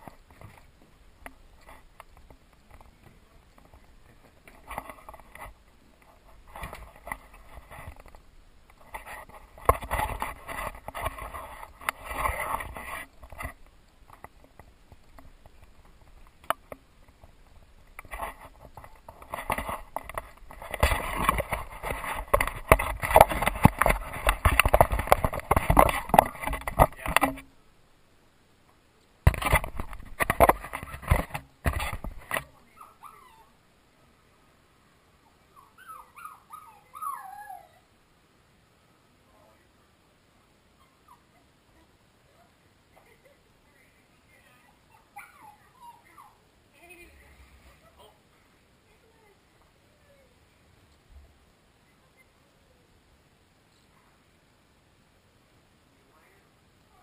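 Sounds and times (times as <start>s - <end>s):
camera handling rubbing and knocking: 3.6s - 27.5s, 29.3s - 32.5s
puppies whimpering: 35.5s - 37.9s, 44.8s - 46.4s.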